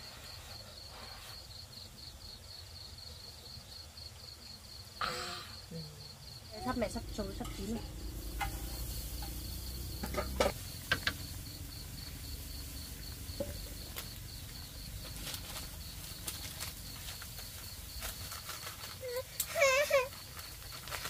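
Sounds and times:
crickets chirping: 0.0 - 21.0
wood fire crackling: 6.6 - 21.0.

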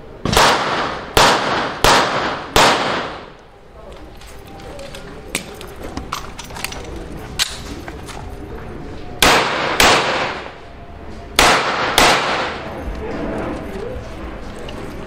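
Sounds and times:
gunshots ringing out: 0.2 - 3.3, 9.2 - 10.6, 11.4 - 12.8.

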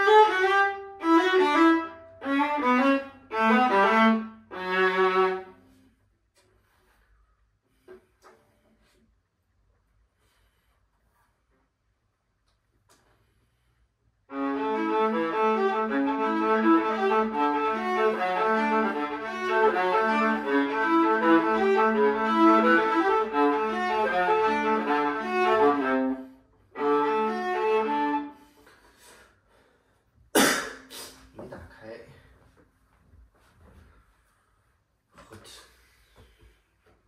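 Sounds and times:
solo violin bowed: 0.0 - 5.9, 14.3 - 29.2.

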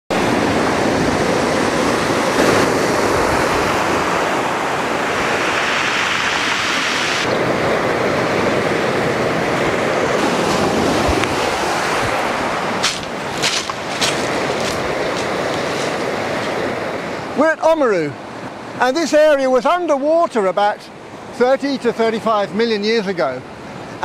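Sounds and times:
wind on microphone: 0.1 - 17.4
sea waves breaking: 0.1 - 22.1, 23.0 - 24.0.

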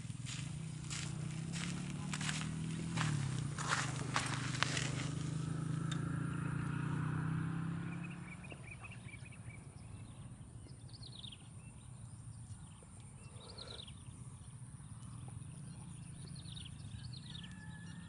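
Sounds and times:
steady low hum: 0.0 - 6.7
bird chirps and twitters: 7.8 - 18.0.

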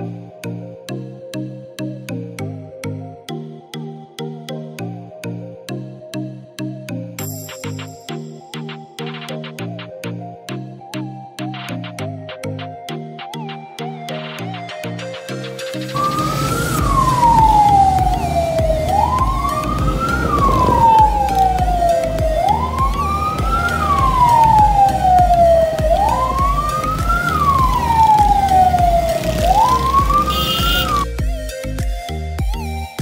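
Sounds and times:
siren wailing: 9.4 - 31.1.

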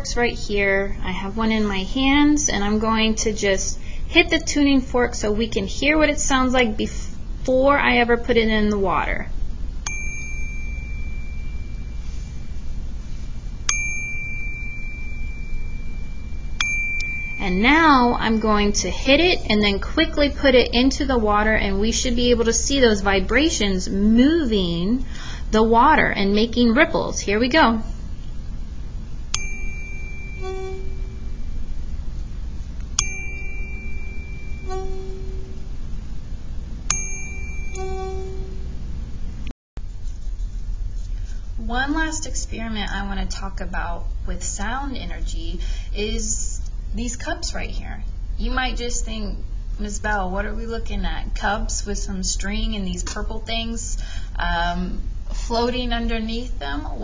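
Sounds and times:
buzzing hum in water: 0.0 - 57.0
tuning fork struck with clink: 9.8 - 12.5, 13.7 - 18.2, 29.3 - 31.7, 32.8 - 35.8, 36.9 - 38.8
tuning fork ringing: 9.8 - 19.0, 29.2 - 39.2.

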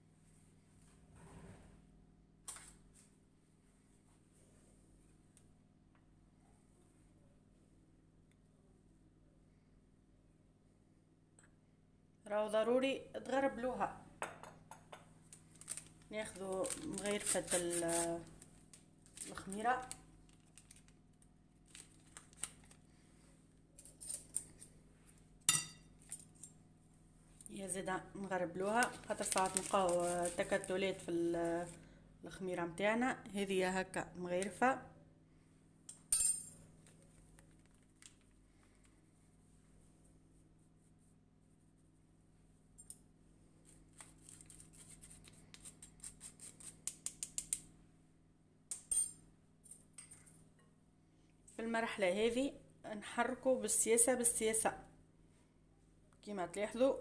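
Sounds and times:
paper sachet crinkling: 15.4 - 23.0, 28.7 - 31.8.

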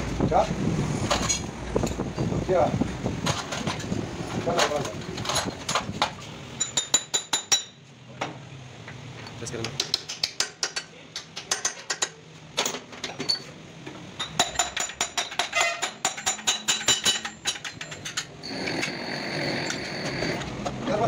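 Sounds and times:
hammer tapping metal punch: 14.2 - 18.3.

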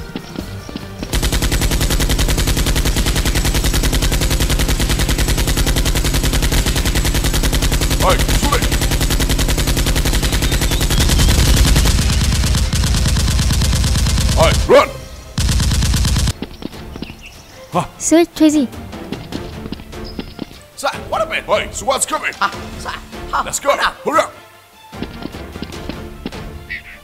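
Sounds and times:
rapid automatic gunfire: 1.1 - 16.4.

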